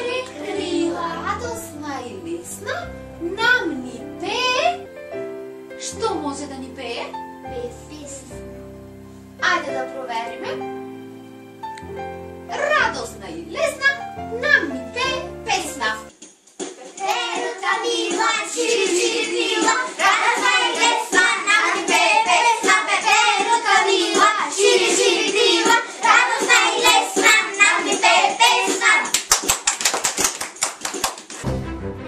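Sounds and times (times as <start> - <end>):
children clapping hands: 16.6 - 24.4, 25.2 - 31.5
children singing: 16.8 - 29.1.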